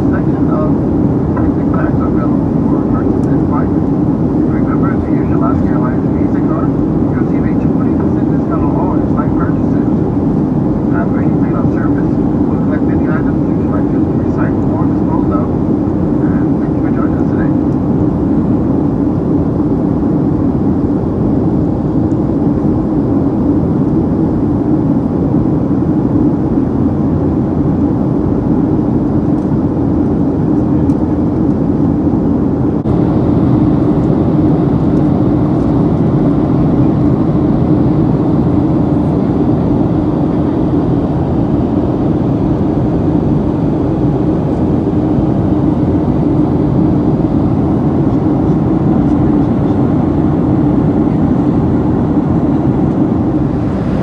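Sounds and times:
jet engines humming: 0.0 - 54.0
airflow rushing: 30.2 - 54.0.

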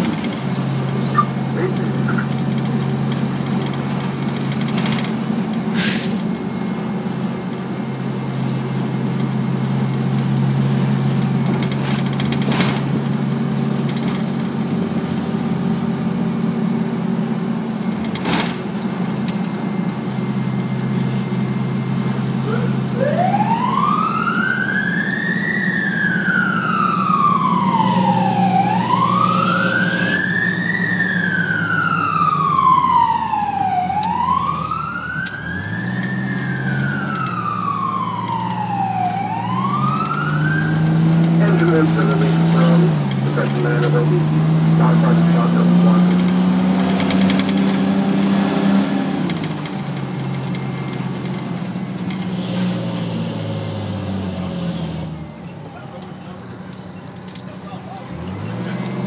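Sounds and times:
fire truck engine running: 0.0 - 59.0
siren wailing: 1.0 - 2.4, 19.6 - 49.3.

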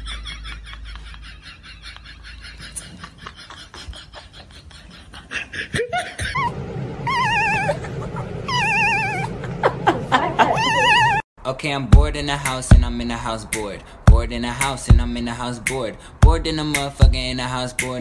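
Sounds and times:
high-pitched warbling wail: 6.3 - 9.8, 10.4 - 11.2.

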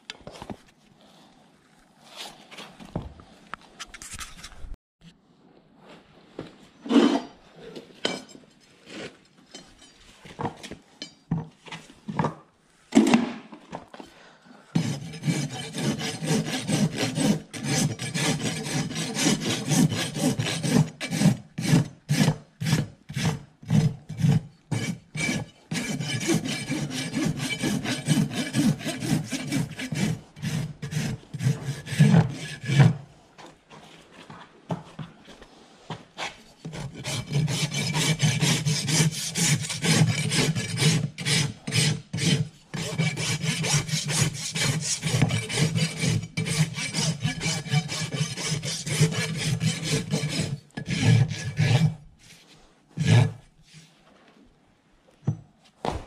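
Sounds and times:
rasp scraping hoof: 14.8 - 33.0, 36.2 - 54.0.

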